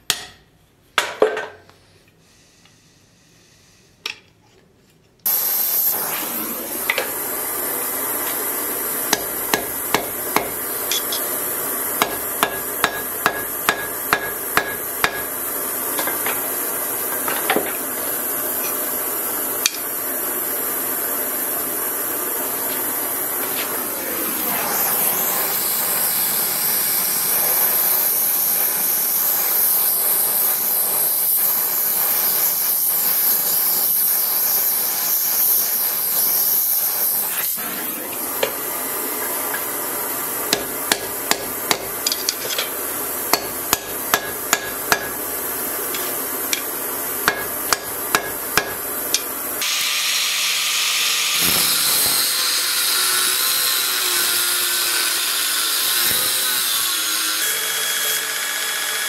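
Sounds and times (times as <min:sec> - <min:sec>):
hammer striking steel on anvil: 0:00.0 - 0:01.5, 0:09.1 - 0:11.3, 0:12.0 - 0:15.4, 0:40.5 - 0:45.3, 0:46.0 - 0:49.3.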